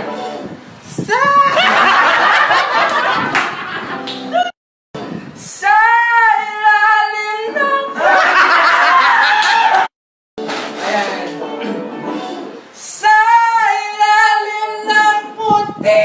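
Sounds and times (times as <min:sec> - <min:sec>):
voices and laughter: 0:01.4 - 0:04.6, 0:08.0 - 0:09.7.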